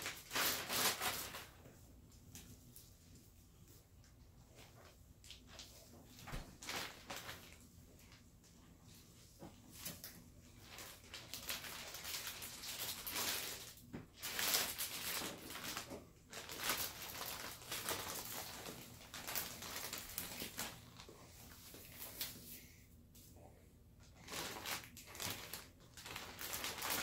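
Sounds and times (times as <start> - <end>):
plastic bag rustling and crinkling: 0.0 - 1.7, 4.5 - 8.3, 9.6 - 22.4, 24.1 - 27.0.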